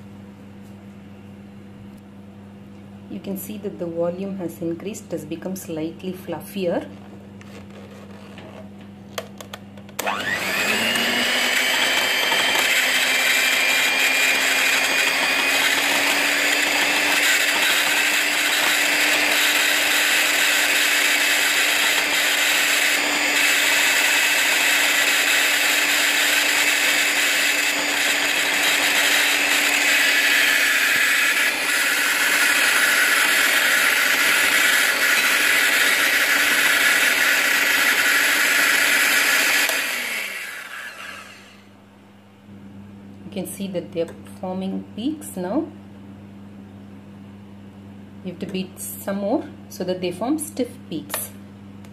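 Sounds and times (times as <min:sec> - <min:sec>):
electric hand mixer whining: 0:10.0 - 0:41.7.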